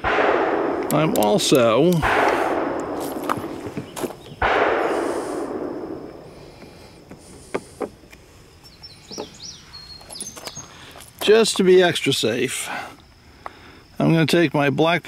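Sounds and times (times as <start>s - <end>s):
gunshot echoing: 0.0s - 7.5s.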